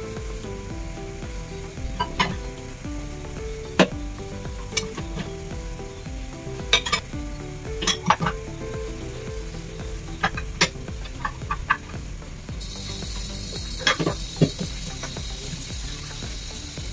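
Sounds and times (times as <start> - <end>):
light background music: 0.0 - 16.9.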